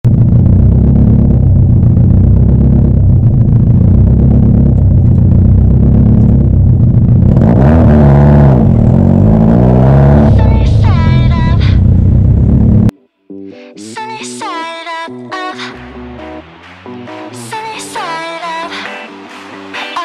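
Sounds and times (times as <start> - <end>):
car engine idling: 0.0 - 12.9, 15.5 - 18.1
engine revving: 0.0 - 12.9, 15.3 - 19.9.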